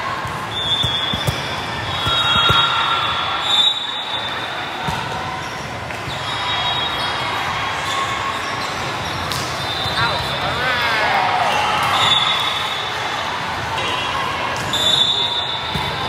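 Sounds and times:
echoing hall background noise: 0.0s - 16.0s
volleyballs being hit: 0.2s - 2.9s
rubber-sole squeaks on court floor: 0.5s - 4.1s.

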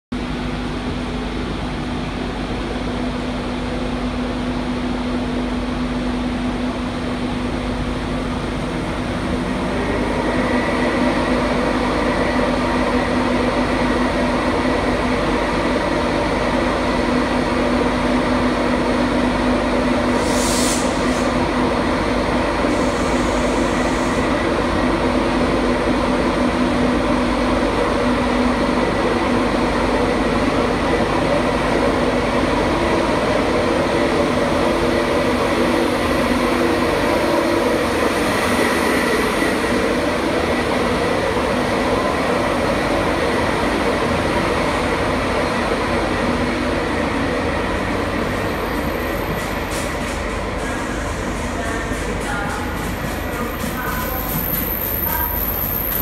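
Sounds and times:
electric locomotive humming: 0.2s - 56.0s
brief hiss: 20.2s - 21.3s.

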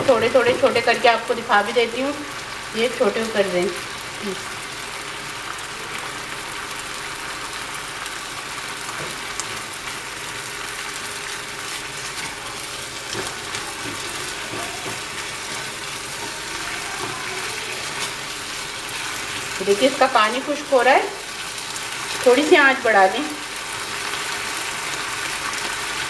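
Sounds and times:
chicken sizzling in a frying pan: 0.0s - 26.0s
spatula tapping and scraping: 13.1s - 18.2s.

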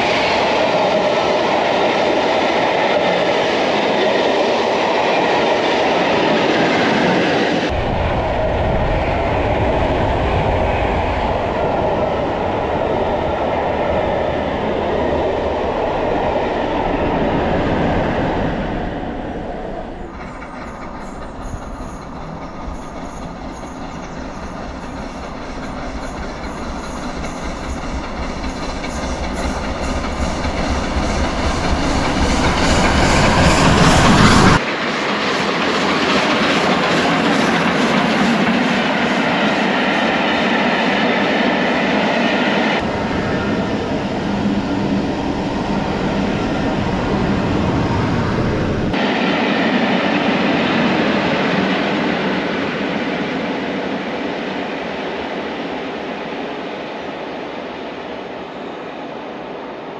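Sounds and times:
steam train passing: 0.0s - 59.9s.

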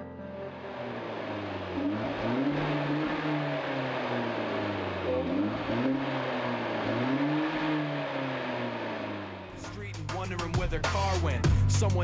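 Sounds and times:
car engine revving: 0.4s - 12.0s.

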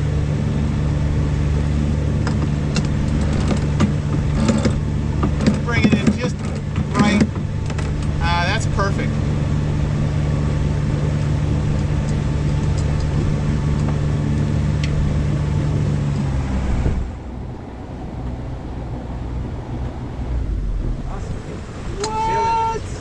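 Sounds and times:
diesel engine running: 0.0s - 23.0s
water rushing past hull: 0.0s - 23.0s
wind rushing: 13.1s - 23.0s.

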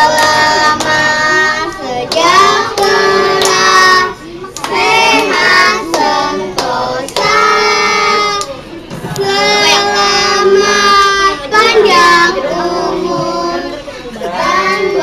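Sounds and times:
hand claps: 0.1s - 1.0s, 2.0s - 3.7s, 4.6s - 7.4s.

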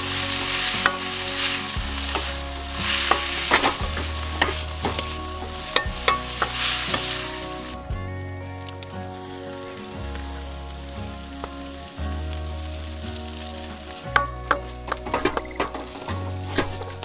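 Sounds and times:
utensil scraping and clinking on wok: 0.0s - 7.8s
noodles sizzling in oil: 0.0s - 7.9s, 8.8s - 17.0s.

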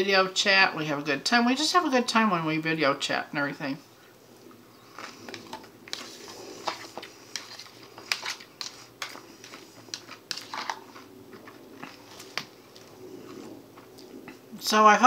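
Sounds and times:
chewing crisp salad: 4.4s - 14.5s
fork clicking and scraping bowl: 5.0s - 12.9s.

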